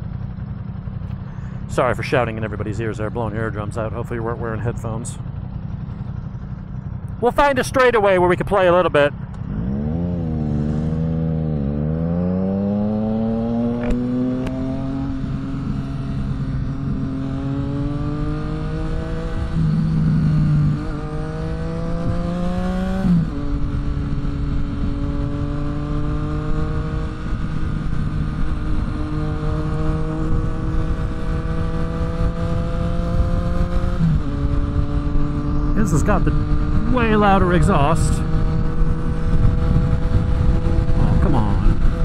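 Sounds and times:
motorcycle engine accelerating: 0.0 - 42.0
wind rush: 26.4 - 42.0.

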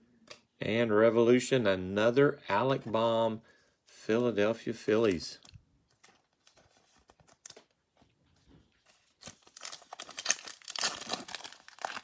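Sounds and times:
foil pack crinkling: 8.9 - 12.0.

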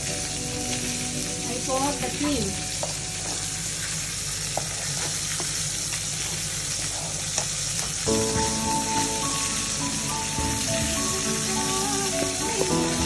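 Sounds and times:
background music: 8.1 - 13.0.

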